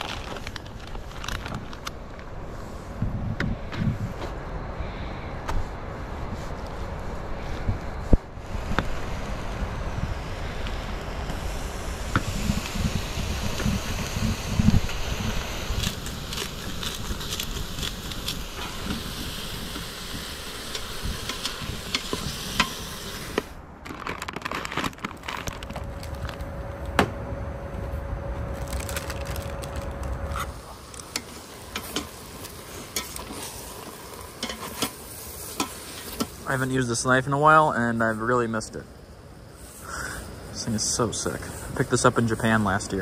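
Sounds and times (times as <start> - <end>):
meat sizzling in a pot: 11.0 - 23.5, 31.0 - 36.6
pepper grinder crunching: 14.5 - 19.0.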